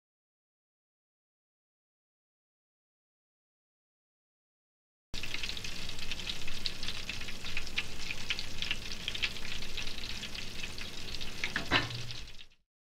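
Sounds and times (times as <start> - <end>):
oysters deep-frying crackle: 5.2 - 12.6.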